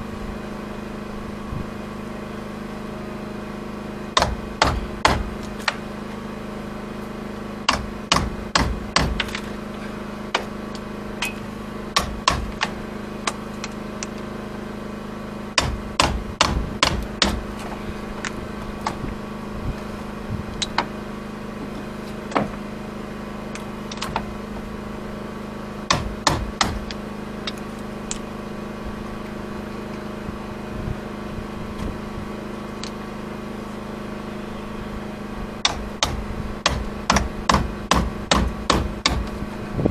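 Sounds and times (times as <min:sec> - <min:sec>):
steady low hum: 0:00.0 - 0:39.9
hammer striking chisel: 0:04.2 - 0:05.8, 0:07.7 - 0:09.4, 0:12.0 - 0:13.4, 0:15.6 - 0:17.4, 0:25.9 - 0:27.0, 0:35.6 - 0:39.4.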